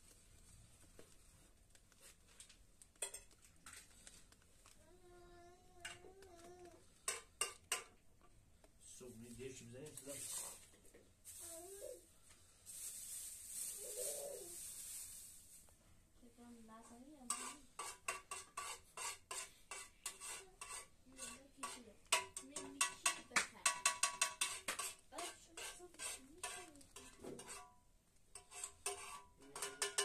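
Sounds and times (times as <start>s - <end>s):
metal spoon scraping a pan: 3.0s - 4.2s, 5.8s - 6.2s, 6.9s - 8.0s, 9.9s - 10.8s, 17.2s - 30.0s.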